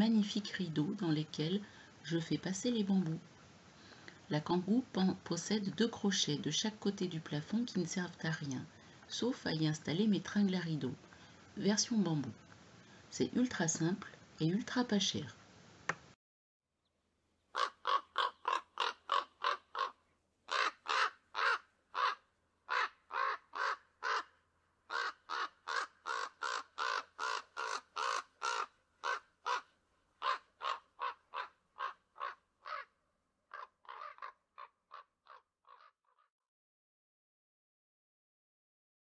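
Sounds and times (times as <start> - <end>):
crow cawing harshly: 17.6 - 24.3, 24.9 - 32.9, 33.5 - 35.9.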